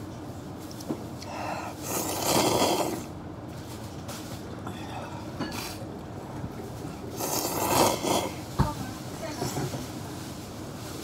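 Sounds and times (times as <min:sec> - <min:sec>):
person slurping noodles: 0:01.2 - 0:03.2, 0:07.1 - 0:08.4.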